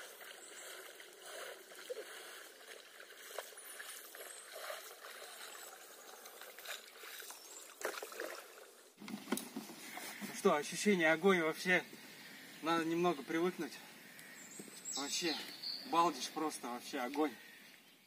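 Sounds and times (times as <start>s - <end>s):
oars splashing in water: 0.0s - 10.6s.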